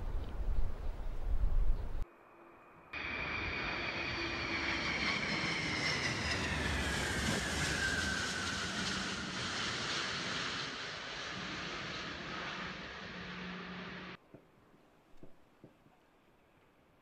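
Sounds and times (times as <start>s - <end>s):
jet aircraft flying overhead: 2.0s - 14.2s.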